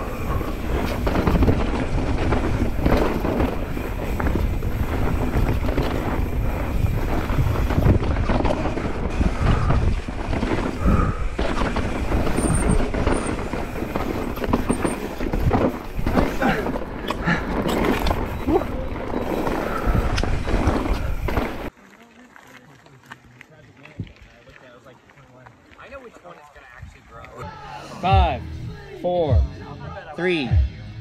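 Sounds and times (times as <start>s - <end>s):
bike knocks and rattles: 0.0s - 21.7s
wind buffeting microphone: 0.0s - 21.7s
tyres rolling on dirt: 0.0s - 27.4s.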